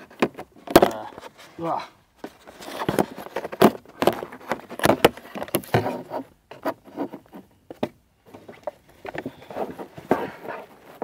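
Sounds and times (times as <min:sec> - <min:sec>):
handling knocks and taps: 0:02.2 - 0:10.2
handling rustling: 0:02.2 - 0:11.0.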